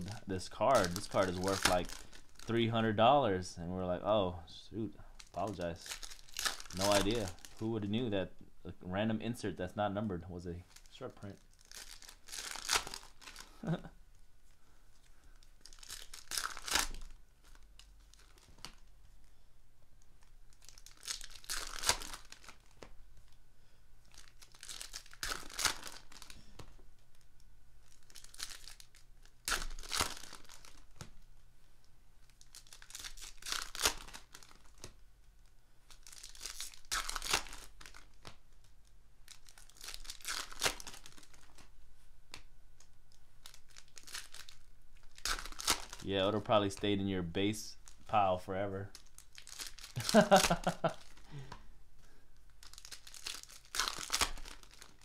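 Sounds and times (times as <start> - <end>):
foil packs being torn open: 0.0 - 2.6, 5.2 - 7.8, 11.5 - 13.8, 15.6 - 18.8, 20.5 - 22.8, 24.1 - 26.4, 27.8 - 31.1, 32.2 - 35.0, 35.9 - 38.6, 39.3 - 41.6, 43.4 - 47.0, 48.9 - 51.5, 52.6 - 55.0.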